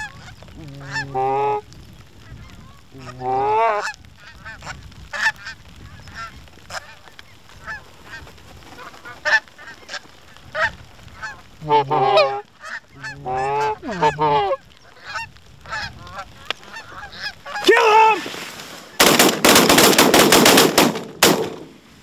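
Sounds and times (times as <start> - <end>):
geese honking: 0.0 - 1.6, 2.3 - 17.7.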